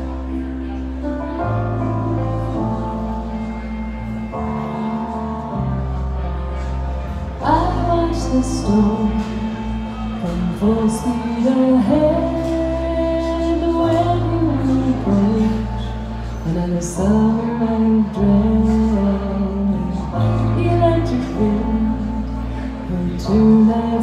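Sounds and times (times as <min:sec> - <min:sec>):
electric bass: 0:00.0 - 0:24.0
keyboard piano: 0:00.0 - 0:24.0
woman singing: 0:07.4 - 0:24.0.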